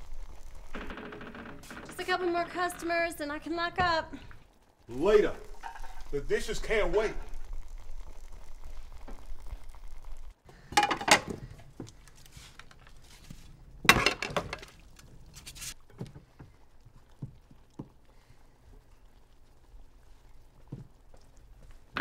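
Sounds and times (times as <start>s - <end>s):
dishes clattering in a metal sink: 10.7s - 11.5s, 13.8s - 14.8s.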